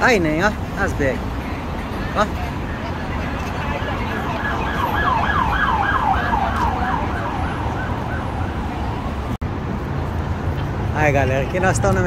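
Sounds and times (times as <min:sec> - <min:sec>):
road traffic rumble: 0:00.0 - 0:12.0
siren yelping: 0:02.6 - 0:09.2.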